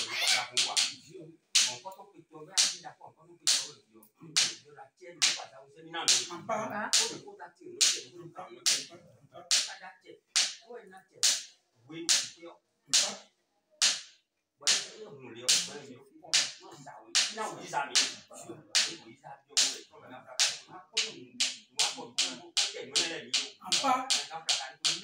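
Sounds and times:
sharp smacking strikes: 0:01.6 - 0:01.8, 0:03.5 - 0:03.7, 0:10.4 - 0:10.6, 0:11.2 - 0:11.5, 0:12.1 - 0:13.2, 0:13.8 - 0:14.1, 0:17.2 - 0:17.4, 0:18.8 - 0:19.0, 0:19.6 - 0:19.8.

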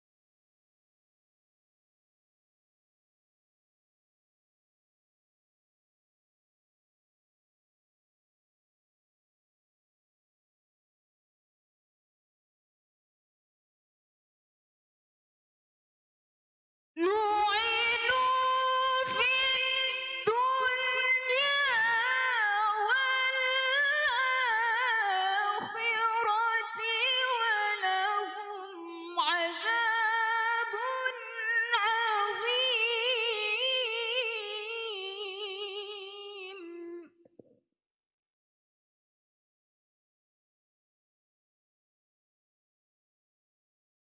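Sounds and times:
girl chanting recitation: 0:17.0 - 0:37.1.

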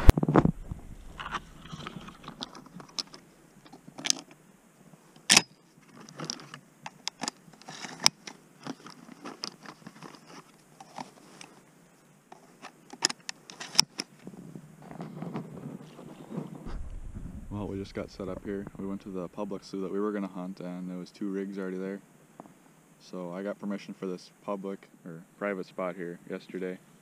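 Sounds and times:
light rustling: 0:00.0 - 0:04.2, 0:13.5 - 0:19.3.

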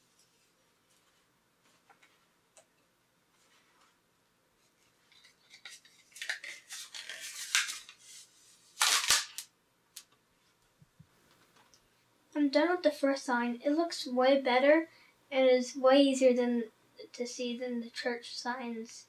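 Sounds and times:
plastic rustling and scraping: 0:04.6 - 0:09.4.

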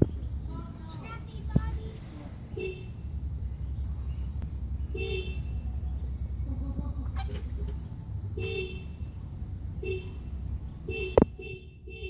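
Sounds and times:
low steady rumble: 0:00.0 - 0:12.0
car horn honking: 0:02.5 - 0:03.1, 0:04.9 - 0:05.8, 0:08.3 - 0:09.2, 0:09.8 - 0:12.0.

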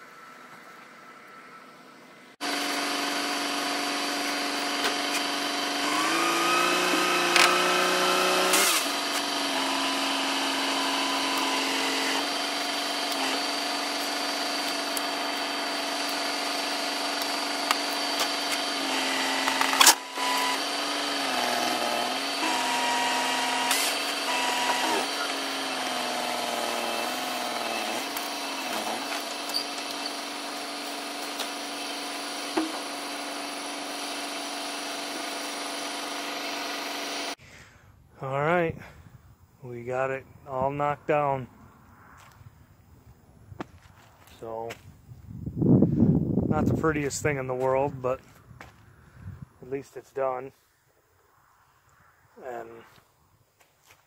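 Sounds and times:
hydraulic pump whining: 0:02.4 - 0:37.4
truck engine revving: 0:02.4 - 0:37.4.

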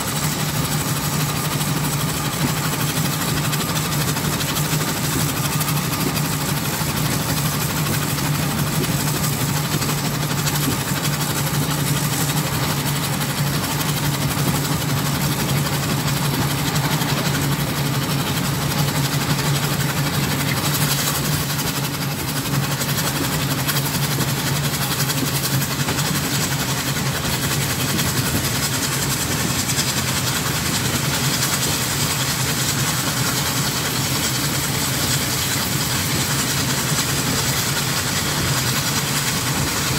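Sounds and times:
steam traction engine running: 0:00.0 - 0:39.9.

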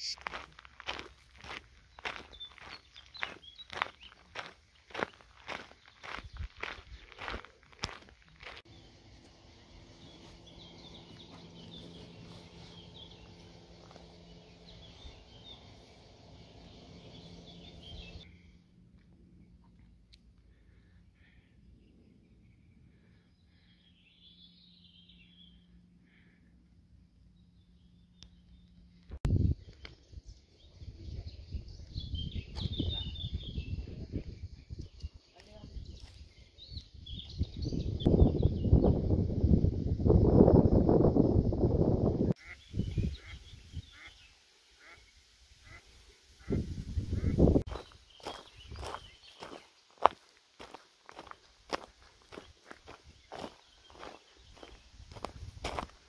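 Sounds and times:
small birds chirping: 0:00.0 - 0:18.6, 0:27.2 - 0:39.2, 0:42.4 - 0:56.0
low steady hum: 0:08.7 - 0:32.0.

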